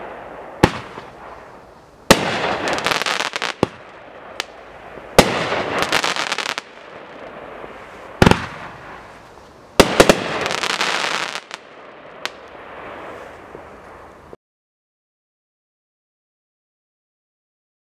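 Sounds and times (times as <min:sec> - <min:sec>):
firework bangs: 0:00.0 - 0:14.1
firework crackling: 0:00.0 - 0:14.4.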